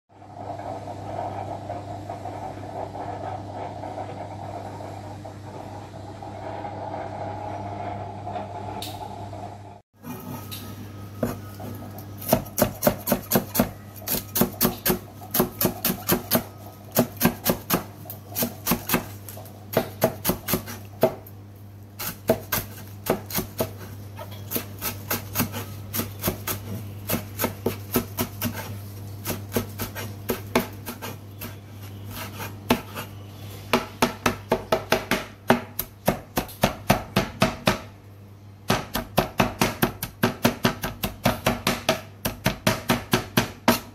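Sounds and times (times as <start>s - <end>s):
cleaver chopping on plastic board: 12.2s - 17.8s.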